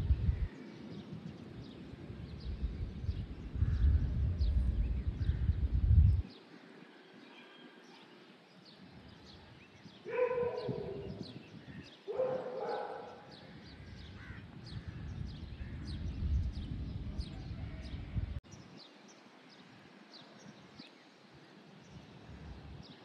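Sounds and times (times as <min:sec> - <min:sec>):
bird chirping: 0:00.0 - 0:22.2
low rumble: 0:02.4 - 0:06.2, 0:14.8 - 0:18.4.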